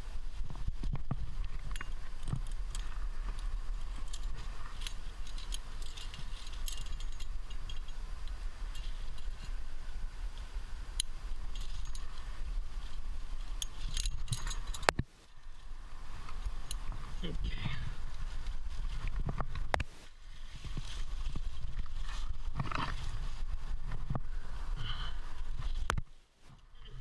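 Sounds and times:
metal climbing gear clinking: 0.8s - 15.6s, 16.2s - 19.6s.

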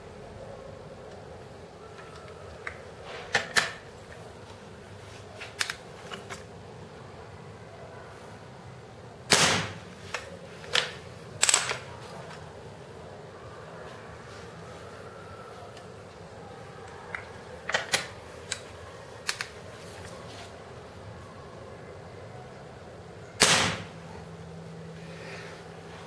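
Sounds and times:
air rifle shot: 9.3s - 9.8s, 23.4s - 24.0s.

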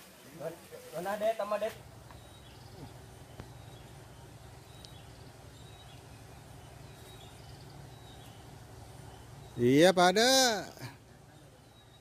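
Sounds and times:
steady low hum: 1.8s - 12.0s
faint bird chirps: 1.9s - 9.9s, 10.8s - 12.0s
light click: 4.8s - 5.0s.

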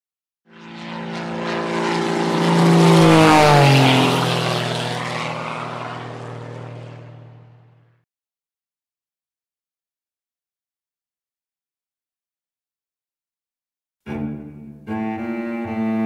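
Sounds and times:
propeller airplane flying past: 0.5s - 8.0s, 14.9s - 16.0s.

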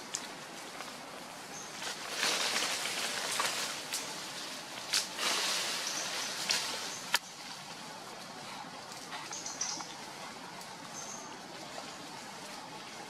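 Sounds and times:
dry leaves rustling: 0.0s - 13.0s
twigs snapping: 4.8s - 5.6s.

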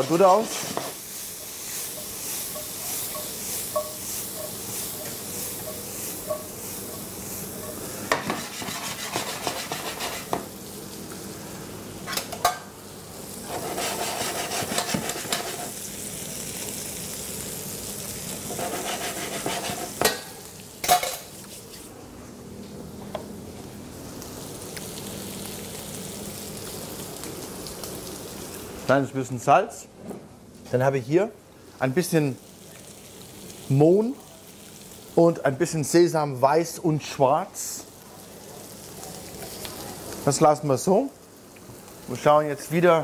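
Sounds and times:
vegetables sizzling in a pan: 0.0s - 21.9s, 23.8s - 29.2s, 31.6s - 43.0s
metal spoon scraping a pan: 0.3s - 10.4s, 13.4s - 15.8s, 18.5s - 20.2s.

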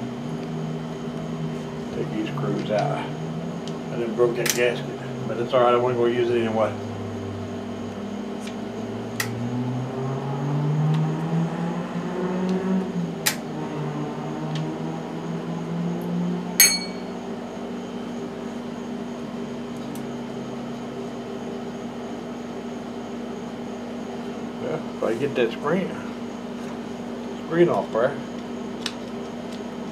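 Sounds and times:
steady machine hum: 0.0s - 29.9s
ringing metallic clink: 16.6s - 17.2s.

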